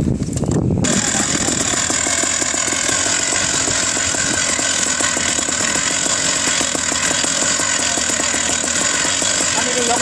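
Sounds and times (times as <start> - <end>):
paramotor engine running: 0.8 - 10.0
propeller whine: 0.8 - 10.0.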